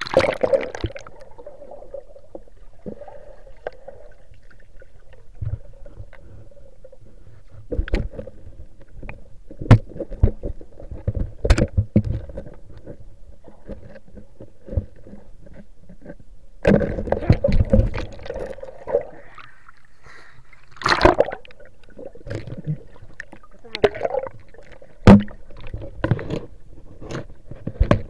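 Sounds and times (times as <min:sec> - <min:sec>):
low underwater water noise: 0:00.0 - 0:28.0
sharp underwater knocks: 0:25.0 - 0:26.4.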